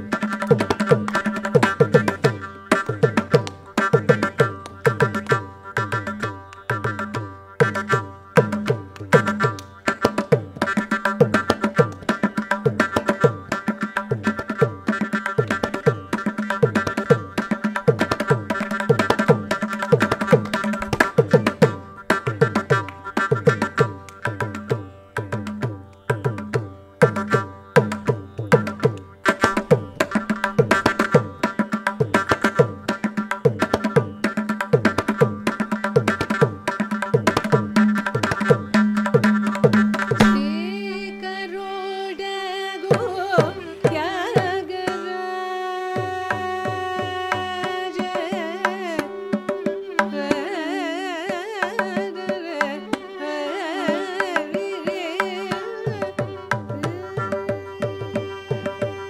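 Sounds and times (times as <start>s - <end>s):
person singing: 40.2s - 59.0s.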